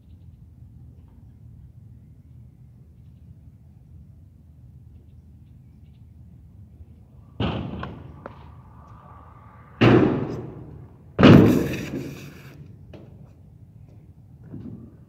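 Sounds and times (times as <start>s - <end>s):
scooter banging on ramp: 7.4s - 8.4s, 9.8s - 12.4s.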